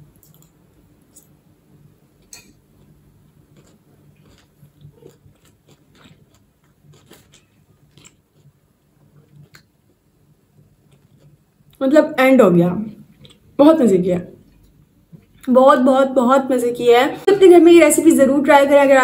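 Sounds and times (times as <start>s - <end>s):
person chewing food: 2.2s - 11.8s, 13.0s - 13.6s.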